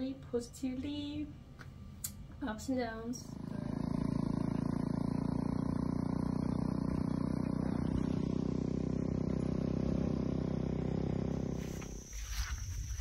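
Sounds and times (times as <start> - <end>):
motorcycle engine running: 3.2 - 13.0.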